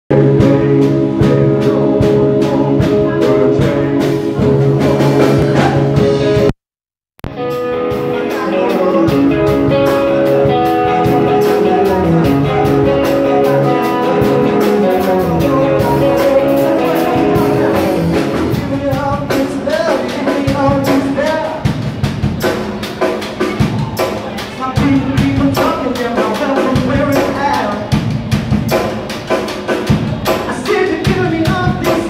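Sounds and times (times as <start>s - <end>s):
person singing: 0.1s - 6.5s, 7.8s - 21.7s, 30.2s - 32.0s
rock band playing: 0.1s - 6.6s, 7.2s - 32.0s.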